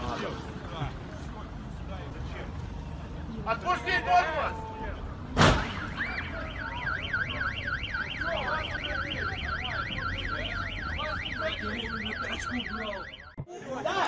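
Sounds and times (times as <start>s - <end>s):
car crash bang: 5.3s - 6.2s
car alarm warbling siren: 5.7s - 13.4s.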